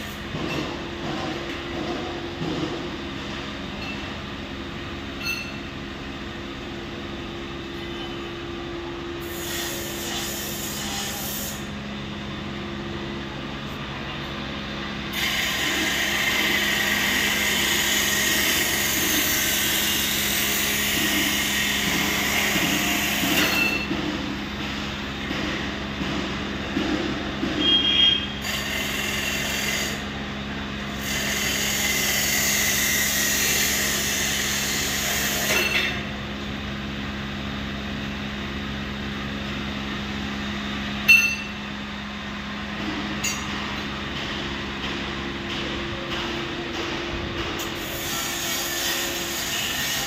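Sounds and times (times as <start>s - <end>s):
workshop machinery hum: 0.0s - 50.0s.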